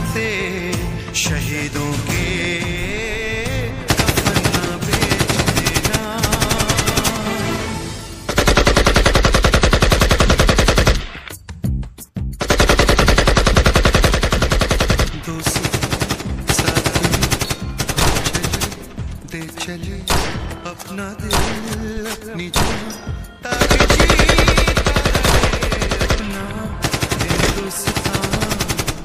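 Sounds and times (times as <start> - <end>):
machine-gun bursts: 3.9 - 7.4, 8.3 - 11.2, 12.4 - 20.4, 23.5 - 29.0.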